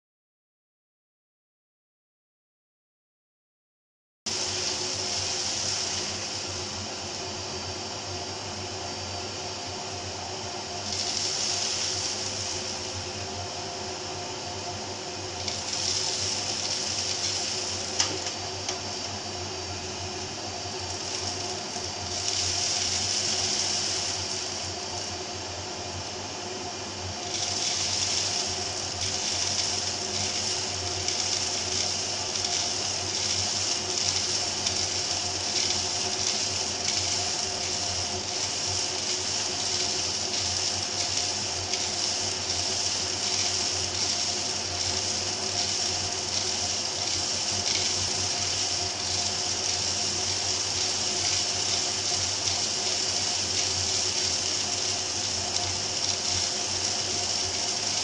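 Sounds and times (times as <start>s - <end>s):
vacuum motor suction hum: 4.3s - 58.0s
bean pieces rattling down a pipe: 27.2s - 54.9s.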